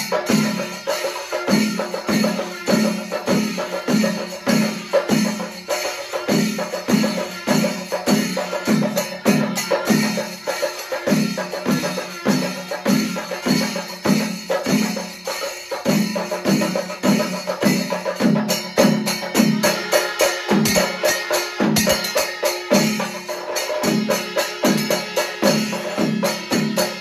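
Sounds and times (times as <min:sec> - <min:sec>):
brass cymbals: 0:00.0 - 0:27.0
drums beating: 0:00.0 - 0:27.0
curved horns: 0:19.6 - 0:27.0.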